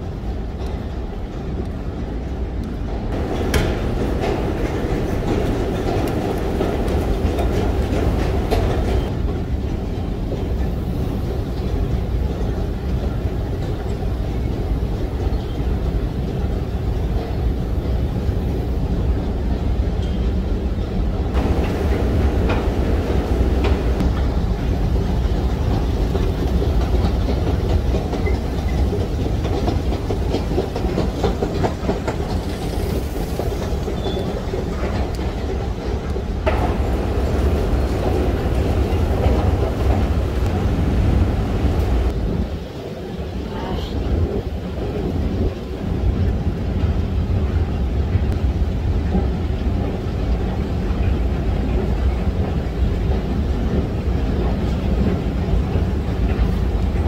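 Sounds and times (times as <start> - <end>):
escalator rumbling: 0.1 - 57.0
escalator steps clicking: 0.2 - 20.4, 21.2 - 42.2.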